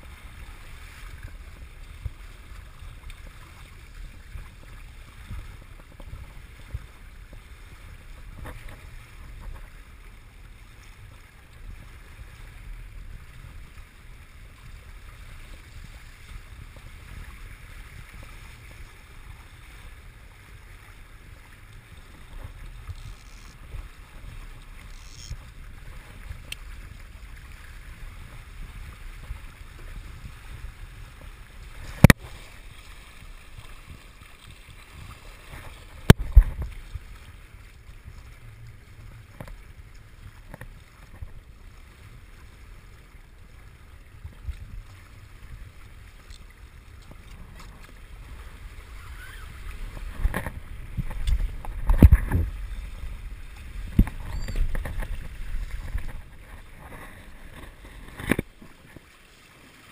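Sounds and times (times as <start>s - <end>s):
water rushing along hull: 0.0s - 59.9s
wind buffeting microphone: 47.5s - 58.5s.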